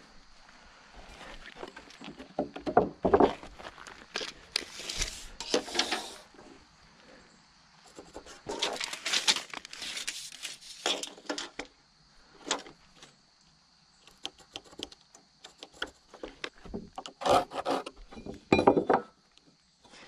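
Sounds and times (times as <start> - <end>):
tape measure scraping wood: 4.6 - 6.3, 7.9 - 11.5, 17.0 - 18.0.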